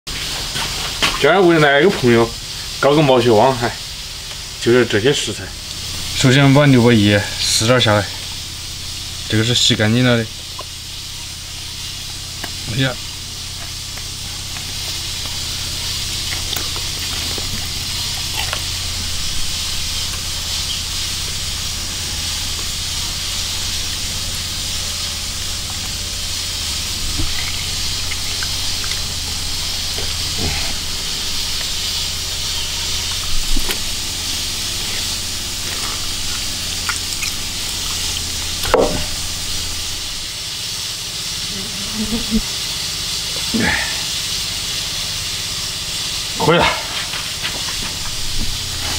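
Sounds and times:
gas burner hiss: 0.1 - 48.9
low hum: 5.5 - 40.4
knocks on wooden chopping board: 38.7 - 39.1.

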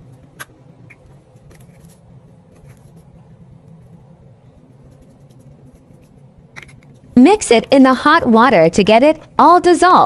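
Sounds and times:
low hum: 0.0 - 10.0
faint ticks and scrapes: 4.8 - 7.1.

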